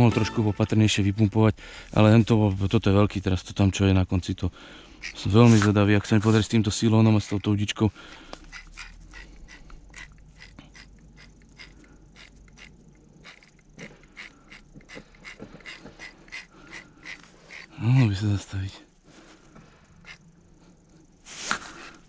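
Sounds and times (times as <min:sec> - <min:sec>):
fishing reel clicking: 0:05.0 - 0:05.7, 0:07.0 - 0:18.2.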